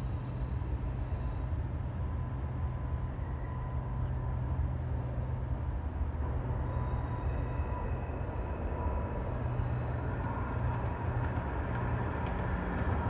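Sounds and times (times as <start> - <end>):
faint thin ringing tones: 0.0 - 11.2
freight train rumbling past: 0.0 - 13.0.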